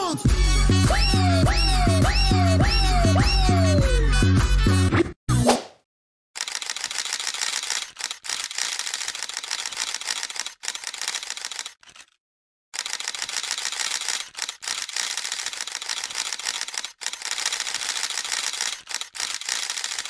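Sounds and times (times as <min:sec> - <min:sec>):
rapid clicking: 0:06.4 - 0:12.2, 0:12.8 - 0:20.0.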